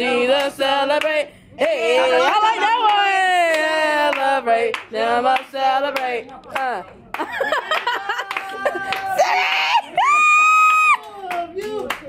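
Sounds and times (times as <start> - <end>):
group of people singing: 0.0 - 6.8
hands clapping: 2.9 - 9.2, 10.8 - 12.0.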